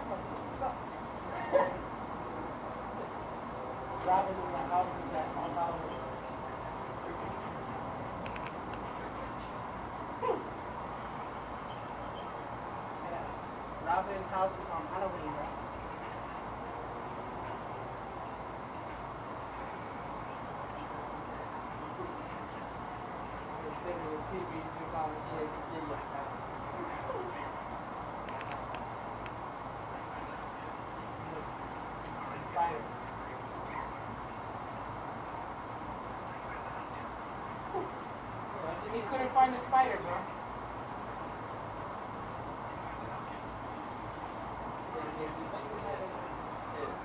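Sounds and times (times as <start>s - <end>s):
crickets chirring: 0.0s - 47.0s
faint ticks: 28.2s - 29.4s.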